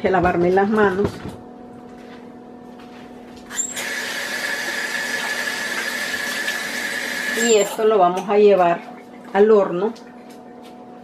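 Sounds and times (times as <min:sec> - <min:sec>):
tap water running into sink: 0:03.8 - 0:08.8.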